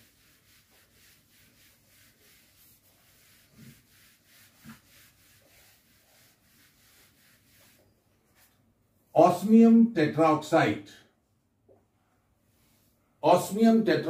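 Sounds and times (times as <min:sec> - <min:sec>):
duster rubbing a whiteboard: 0:00.0 - 0:08.6.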